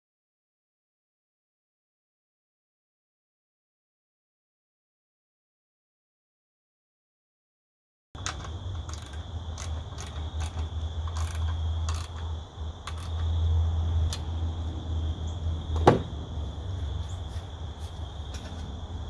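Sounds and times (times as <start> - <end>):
wrench metallic clicks: 8.2 - 13.3
crickets chirring: 8.2 - 19.0
sharp loud knock: 15.8 - 16.1.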